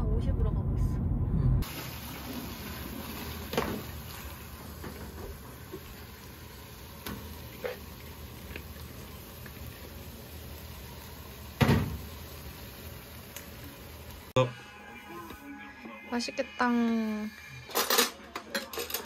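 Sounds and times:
food sizzling in a pan: 0:01.6 - 0:15.4
cookware and utensils clinking: 0:16.8 - 0:19.0.

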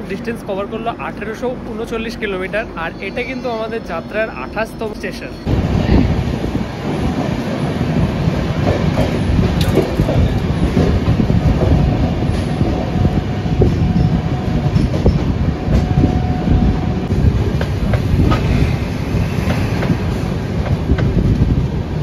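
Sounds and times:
train rumbling over rails: 0:00.0 - 0:22.0
wheels clacking on rail joints: 0:08.5 - 0:16.0.

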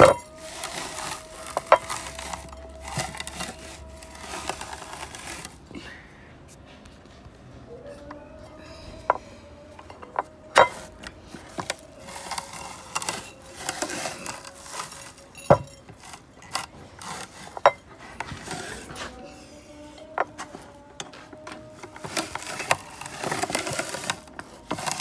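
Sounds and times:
gritty rustling of rice husks: 0:00.0 - 0:05.7, 0:09.8 - 0:25.0
clicks and knocks of metal: 0:09.1 - 0:19.0.

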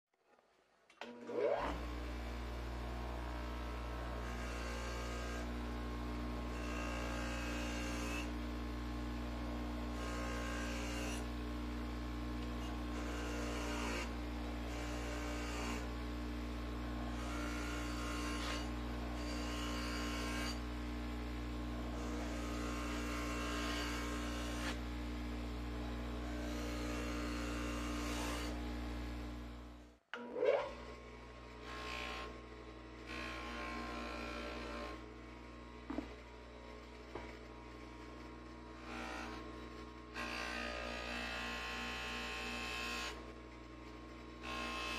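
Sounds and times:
bench grinder motor hum: 0:01.0 - 0:44.9
blade scraping grinding wheel: 0:01.1 - 0:02.0, 0:02.8 - 0:08.3, 0:09.7 - 0:11.3, 0:12.4 - 0:15.9, 0:16.8 - 0:20.6, 0:21.7 - 0:24.8.

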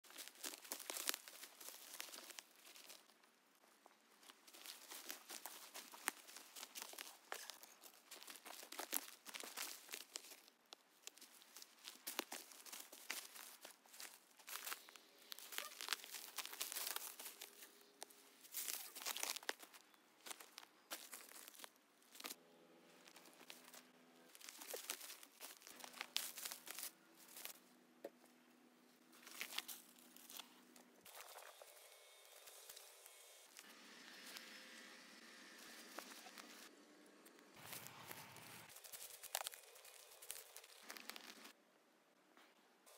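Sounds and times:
footsteps through dry leaves: 0:00.0 - 0:03.1, 0:04.2 - 0:10.5, 0:11.1 - 0:27.6, 0:29.1 - 0:31.7, 0:32.3 - 0:36.7, 0:37.6 - 0:41.6.

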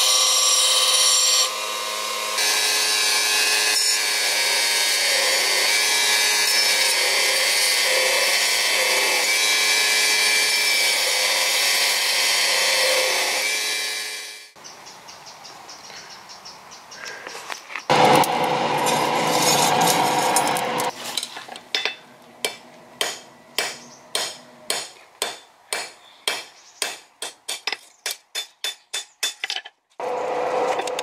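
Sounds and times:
hammer striking steel on anvil: 0:21.8 - 0:29.6.

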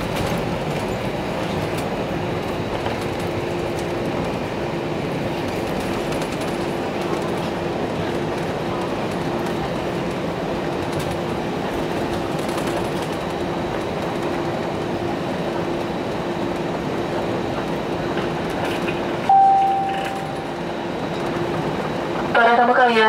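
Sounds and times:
jet engines and wheels rumbling: 0:00.0 - 0:23.0
steady cabin hum: 0:00.0 - 0:23.0
cabin chime: 0:19.3 - 0:20.5.

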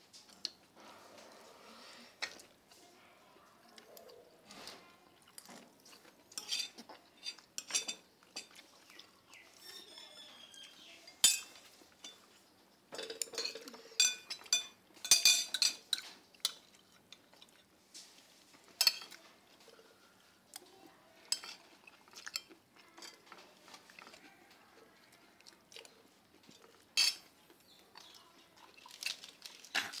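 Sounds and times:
spoons clinking against ceramic plates: 0:06.0 - 0:16.7, 0:18.7 - 0:20.0, 0:21.3 - 0:23.3, 0:26.6 - 0:27.3.

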